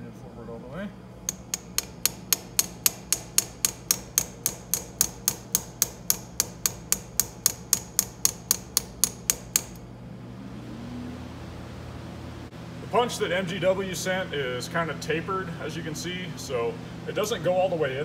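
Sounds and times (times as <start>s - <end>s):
hammer tapping a metal punch: 1.3s - 9.8s.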